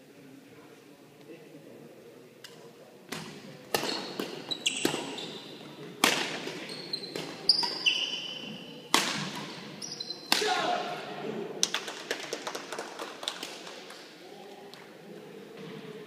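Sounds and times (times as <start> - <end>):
racket striking shuttlecock: 3.1 - 5.2, 6.0 - 7.8, 8.9 - 9.6
sneakers squeaking on court: 3.8 - 8.8, 9.4 - 10.3.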